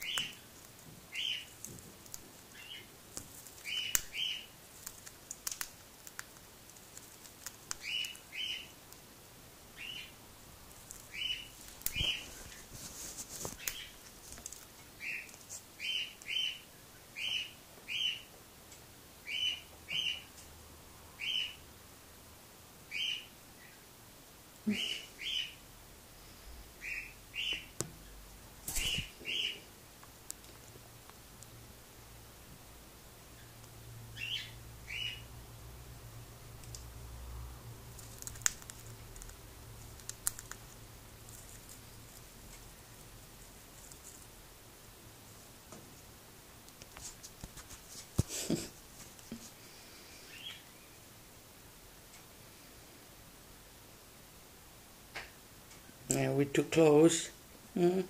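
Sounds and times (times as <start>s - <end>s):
cockatiel chirping: 0.0s - 0.4s, 1.1s - 1.5s, 3.6s - 4.5s, 7.7s - 8.7s, 9.8s - 10.1s, 11.1s - 12.4s, 15.0s - 16.6s, 17.2s - 18.3s, 19.2s - 20.3s, 21.2s - 21.6s, 22.9s - 23.8s, 26.8s - 27.7s, 28.7s - 29.6s, 34.2s - 35.3s.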